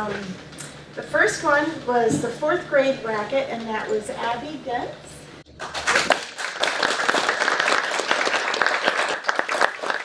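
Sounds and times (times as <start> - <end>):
small group applauding: 5.6 - 10.0.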